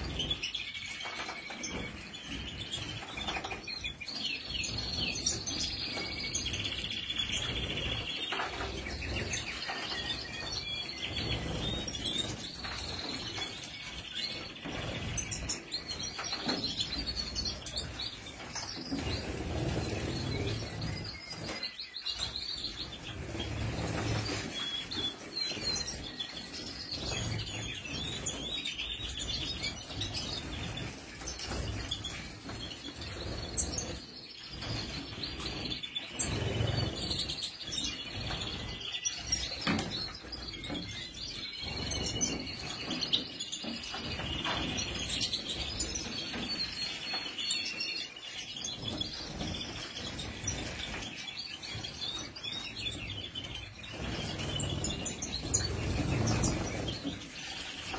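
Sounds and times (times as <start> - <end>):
finches twittering and chirping: 0.0 - 57.9
wings fluttering and splashing water: 48.7 - 57.9.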